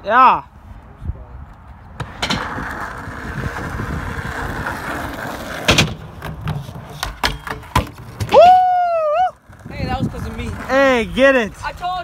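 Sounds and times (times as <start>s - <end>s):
skateboard wheels rolling on asphalt: 1.3s - 12.0s
skateboard clacking: 2.0s - 8.4s.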